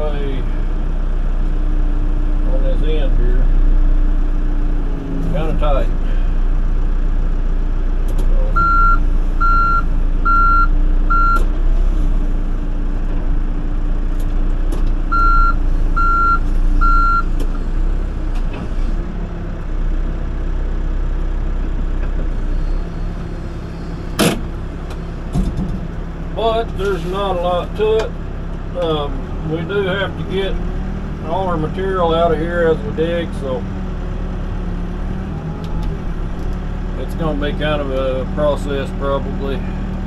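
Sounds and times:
diesel engine running: 0:00.0 - 0:40.0
backup alarm beeping: 0:08.6 - 0:11.4, 0:15.1 - 0:17.3.

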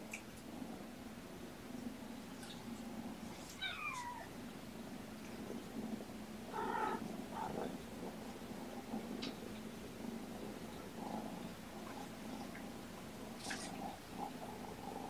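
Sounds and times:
cat purring: 0:00.5 - 0:15.0
cat meowing: 0:03.5 - 0:04.3.

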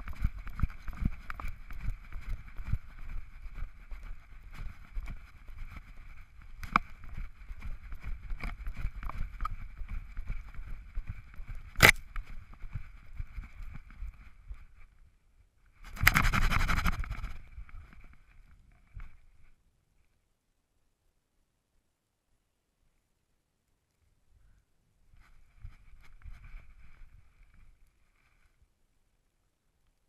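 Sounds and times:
paw thuds in snow: 0:15.9 - 0:17.4
camera housing rubbing harness: 0:16.0 - 0:17.4.

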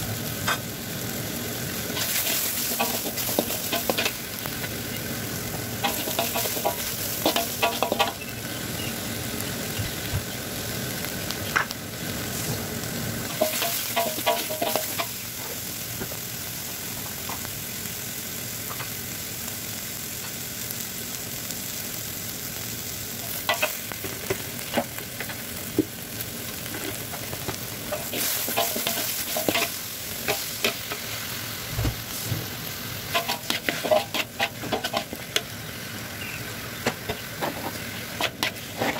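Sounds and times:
spice paste sizzling in oil: 0:00.0 - 0:38.9
metal spatula scraping a wok: 0:27.9 - 0:31.1, 0:33.1 - 0:35.4, 0:37.1 - 0:38.9.

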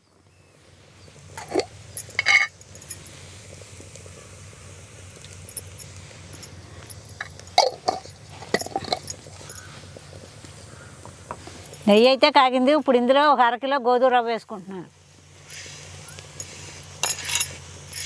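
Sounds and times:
faint low background hum: 0:00.0 - 0:18.0
glass jar clinking: 0:01.4 - 0:03.0, 0:05.4 - 0:09.6, 0:16.4 - 0:18.0.

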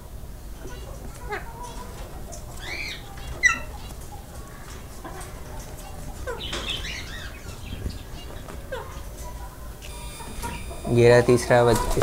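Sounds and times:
parakeets chirping: 0:00.5 - 0:12.0.

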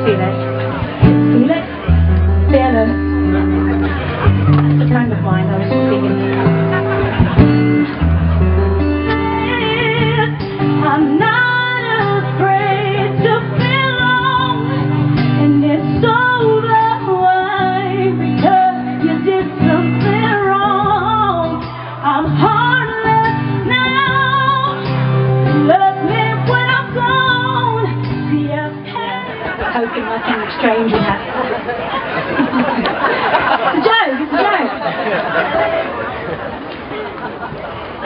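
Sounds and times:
guitar accompaniment: 0:00.0 - 0:38.0
woman singing with vibrato: 0:09.1 - 0:31.1.

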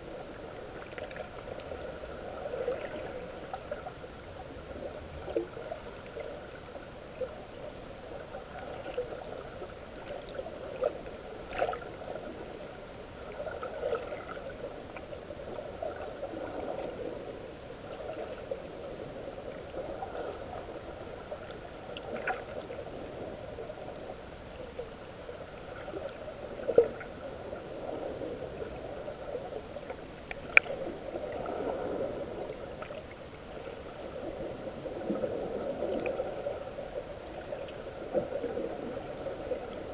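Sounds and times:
muffled underwater water noise: 0:00.0 - 0:39.9.

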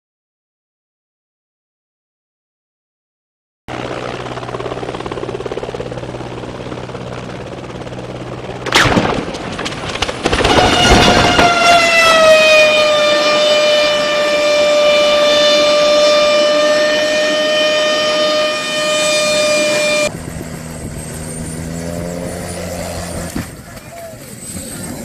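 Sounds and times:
helicopter hovering: 0:03.7 - 0:25.0
high whine sliding down: 0:10.4 - 0:25.0.

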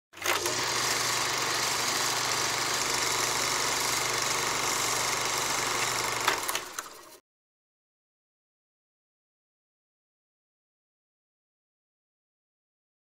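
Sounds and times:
film mechanism whirring: 0:00.2 - 0:07.2.

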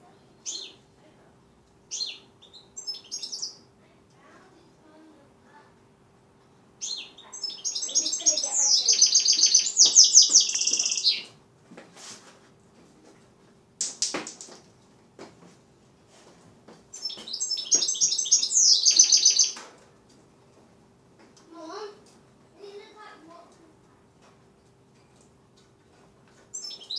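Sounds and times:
bird singing high trills: 0:01.9 - 0:03.6, 0:06.8 - 0:11.3, 0:17.0 - 0:19.6, 0:26.5 - 0:26.9.

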